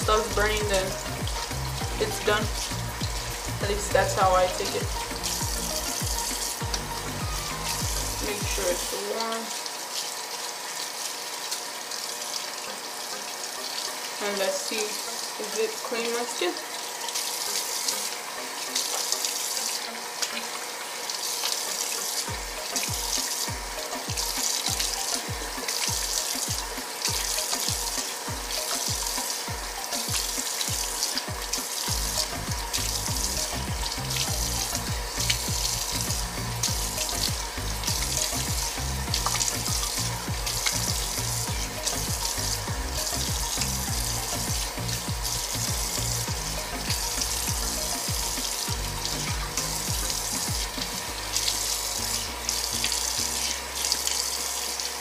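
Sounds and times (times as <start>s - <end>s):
music with bass beat: 0.0s - 8.9s, 22.3s - 53.7s
water running from tap into sink: 0.0s - 55.0s
face rinsing splashes: 16.6s - 54.9s.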